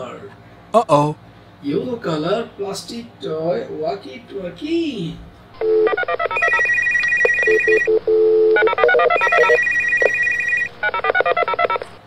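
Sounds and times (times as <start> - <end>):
toy phone electronic ringtone: 5.9 - 7.9, 8.6 - 11.8.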